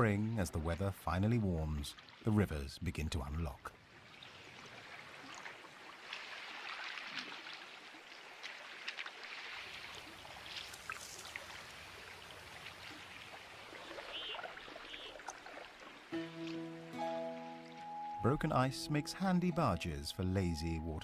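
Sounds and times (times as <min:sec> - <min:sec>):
small ticks and drips: 0:05.2 - 0:16.1.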